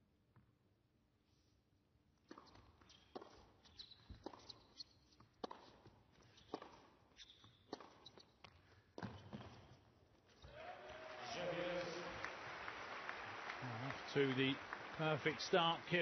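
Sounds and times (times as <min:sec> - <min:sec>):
shoe squeaks on hard court: 0:02.2 - 0:10.5
racket hitting tennis ball: 0:05.3 - 0:08.3.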